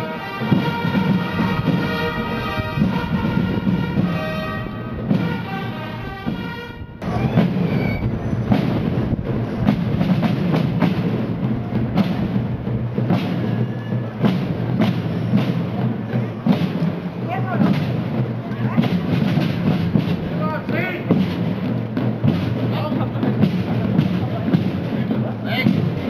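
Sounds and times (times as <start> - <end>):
fanfare trumpets holding notes: 0.0 - 8.5
marching drums beating: 0.0 - 26.0.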